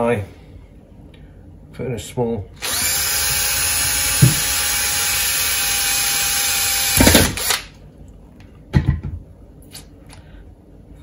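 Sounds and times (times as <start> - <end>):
cordless drill boring plastic: 2.6 - 7.7.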